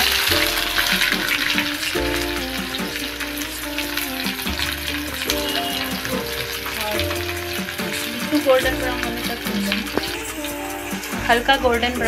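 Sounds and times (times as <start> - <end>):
background music: 0.0 - 12.0
onions sizzling in hot oil: 0.0 - 12.0.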